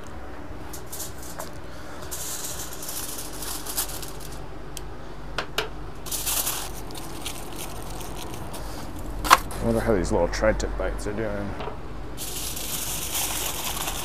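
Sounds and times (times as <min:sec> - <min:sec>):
aluminium foil crinkling: 0:00.7 - 0:04.4, 0:06.0 - 0:09.5, 0:12.2 - 0:14.0.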